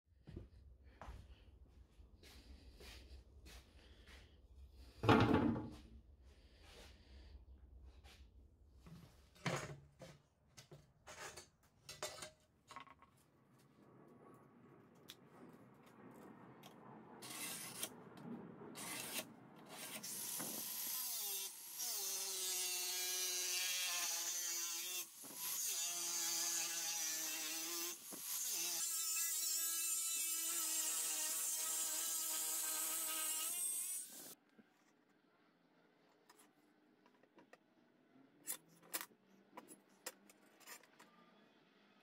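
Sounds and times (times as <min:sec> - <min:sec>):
angle grinder cutting steel: 0:17.2 - 0:17.9, 0:18.8 - 0:34.4.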